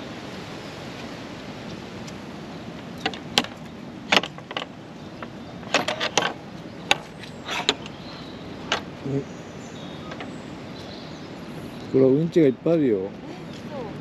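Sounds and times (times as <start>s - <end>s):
gate latch clacking and rattling: 3.0s - 8.0s, 8.6s - 9.0s, 10.0s - 10.3s.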